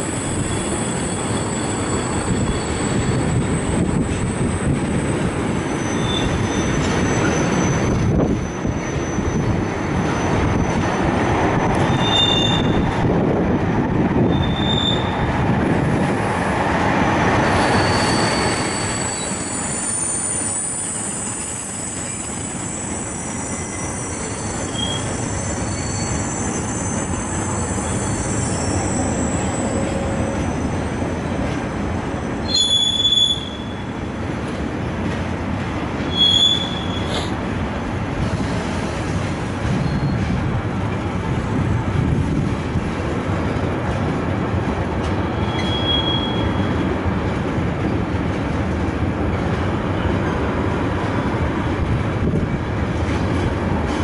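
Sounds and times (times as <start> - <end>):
train wheel squeals: 0.0 - 13.0, 14.2 - 15.3, 17.4 - 31.3, 32.2 - 34.0, 36.0 - 37.4, 38.3 - 40.4, 45.3 - 46.9
freight train wheels rumbling on rail: 0.0 - 54.0.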